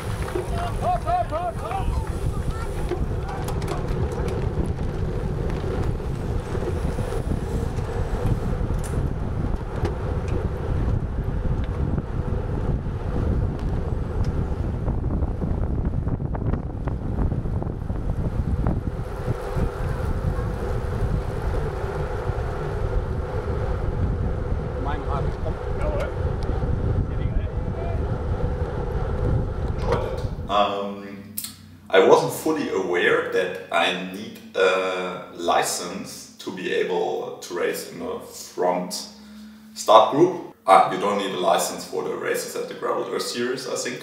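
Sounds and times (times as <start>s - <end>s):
wind buffeting microphone: 0.0s - 30.6s
constant hum: 0.0s - 34.6s, 35.2s - 43.4s.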